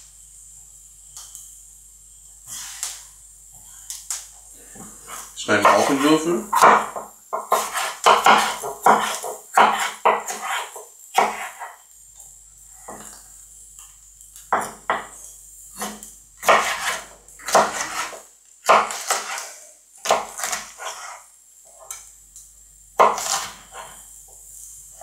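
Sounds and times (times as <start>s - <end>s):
knife dicing on wooden board: 5.6s - 11.7s, 15.8s - 19.4s, 23.0s - 23.9s.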